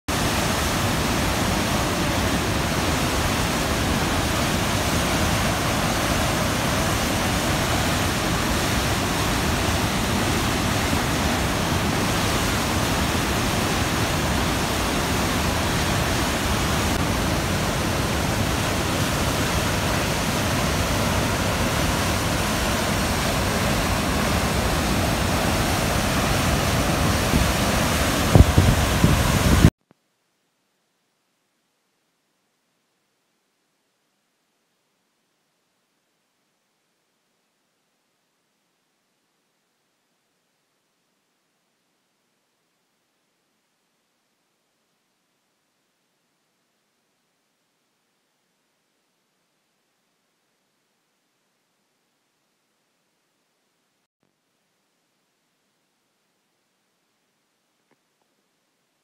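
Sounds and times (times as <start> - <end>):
water rushing down chute: 0.1 - 29.7.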